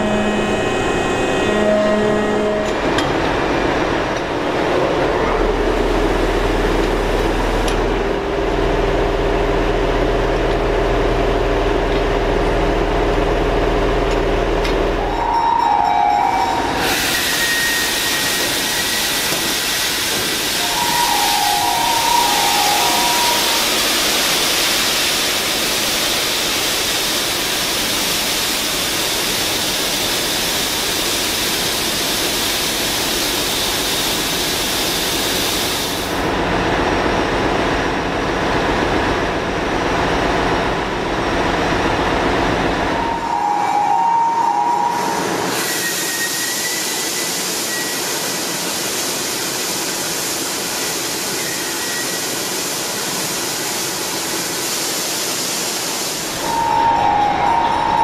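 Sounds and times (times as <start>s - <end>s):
ship diesel engine noise: 0.0s - 45.7s.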